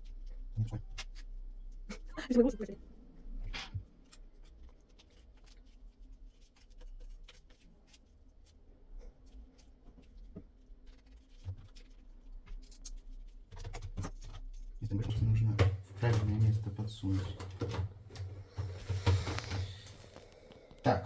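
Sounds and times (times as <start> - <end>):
light clicks and scrapes: 16.1 - 20.8.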